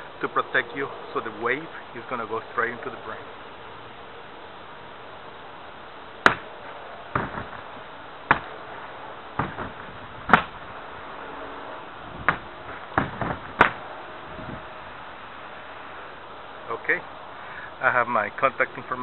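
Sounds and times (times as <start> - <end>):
slaps on punching bag: 6.2 - 6.5, 8.3 - 8.5, 9.4 - 10.6.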